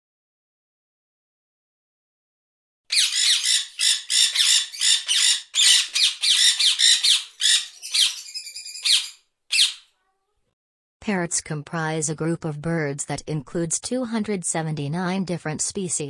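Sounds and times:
parrot squawking: 2.9 - 10.0.

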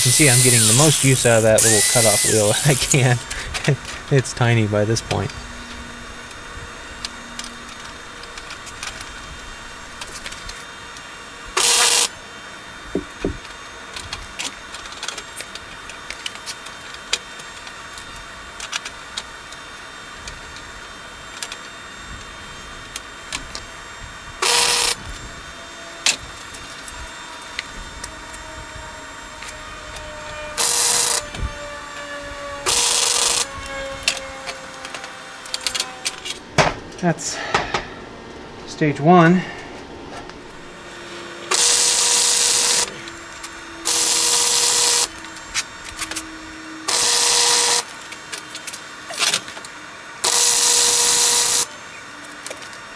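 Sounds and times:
welder arc bursts: 0.0 - 14.4, 21.9 - 28.0, 29.1 - 36.6, 40.4 - 49.5, 50.1 - 51.8
steady hum: 0.0 - 52.9.

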